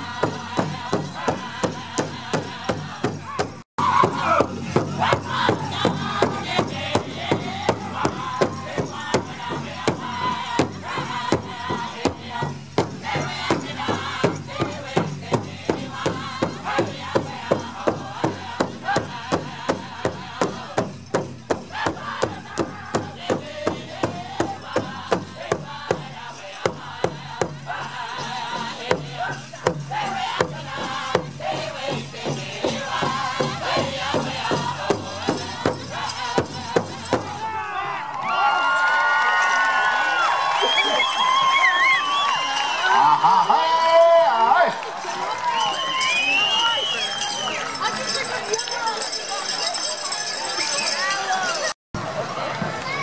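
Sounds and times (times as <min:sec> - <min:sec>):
singers' high voices: 0:00.0 - 0:20.8
large drum beating: 0:00.0 - 0:26.1.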